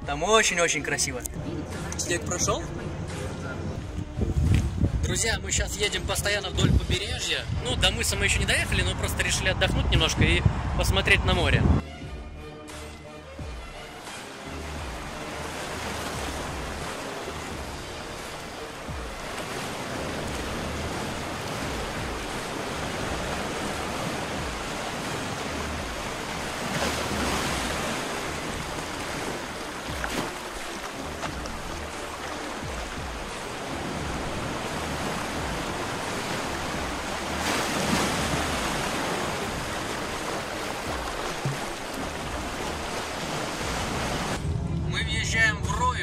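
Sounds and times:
wind rumbling on microphone: 1.3s - 11.8s
waves sloshing among pebbles: 15.2s - 44.4s.

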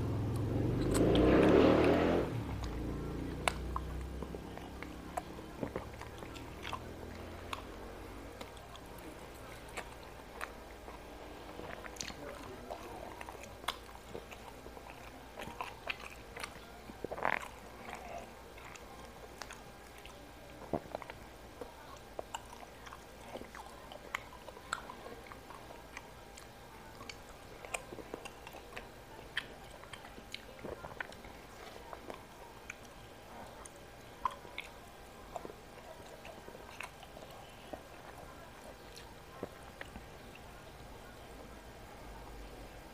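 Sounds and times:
person chewing food: 0.0s - 41.9s
mouth clicks: 0.3s - 6.9s.

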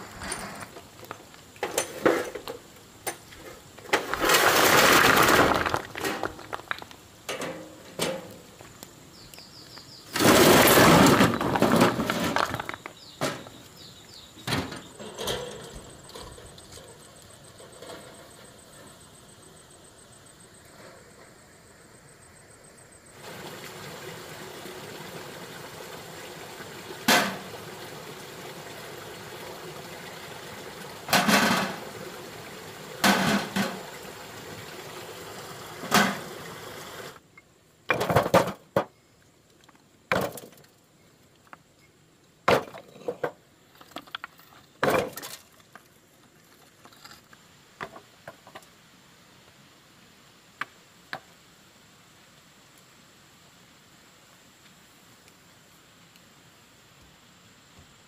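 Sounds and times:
steady hiss: 0.0s - 58.0s
stones knocking together: 3.8s - 7.0s, 9.7s - 13.6s.

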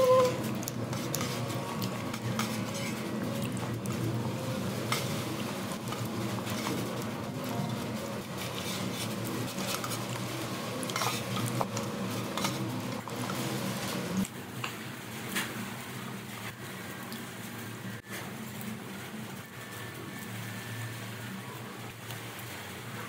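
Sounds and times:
low background hum: 0.0s - 23.0s
clinks and scrapes on metal tray: 0.9s - 3.2s, 10.8s - 12.7s.

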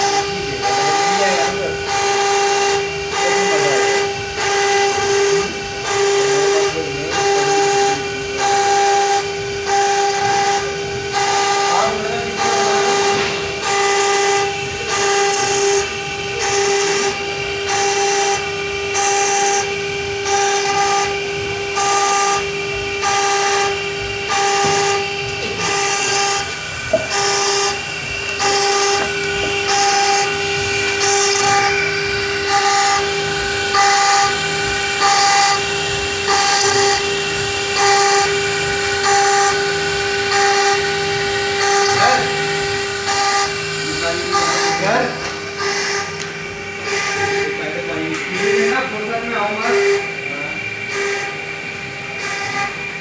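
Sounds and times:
spindle high whine: 0.0s - 53.0s.

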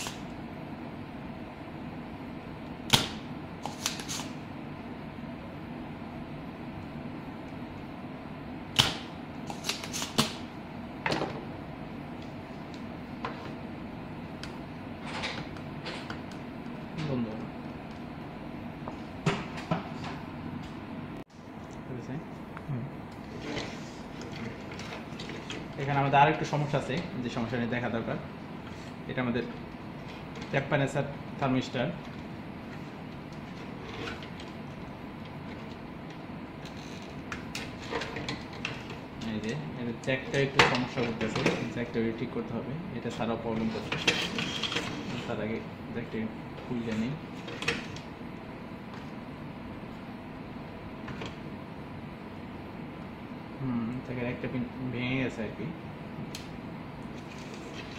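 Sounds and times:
low room hum: 0.0s - 57.9s
desoldering pump snap: 2.9s - 4.3s, 8.7s - 10.4s.

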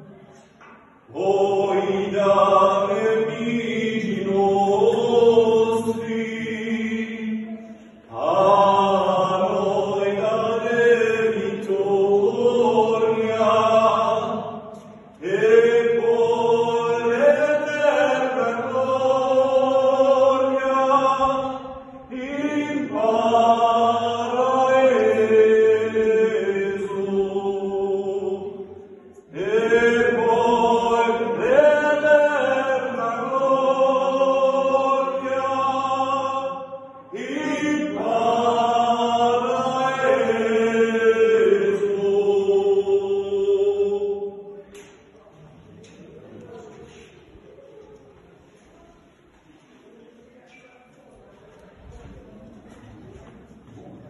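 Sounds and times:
men singing chant in harmony: 1.1s - 14.6s, 15.2s - 28.6s, 29.3s - 44.4s.

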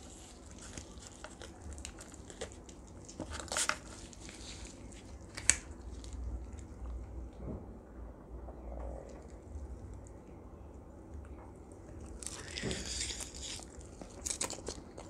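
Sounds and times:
meat tearing: 0.0s - 6.8s, 11.9s - 15.0s
crisp skin crackling: 0.0s - 7.0s, 11.9s - 15.0s.

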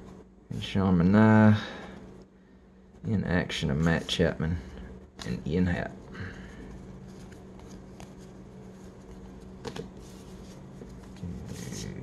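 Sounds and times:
steady low hum: 0.0s - 12.0s
cards rustling and clicking: 6.4s - 12.0s.

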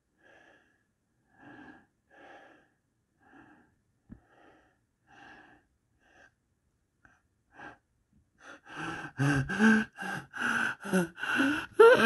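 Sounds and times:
person gasping: 8.4s - 12.0s.

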